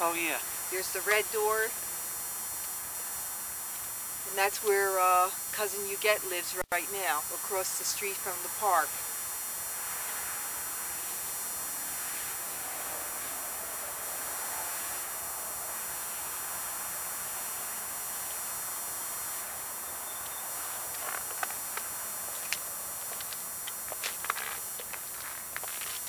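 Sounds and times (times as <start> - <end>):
distant road traffic hiss: 0.0 - 26.0
footsteps on gritty concrete: 20.8 - 26.0.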